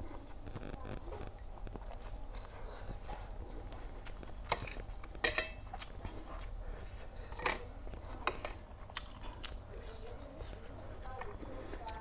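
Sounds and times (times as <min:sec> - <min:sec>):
metal fork clinking on metal tray: 0:04.5 - 0:05.6.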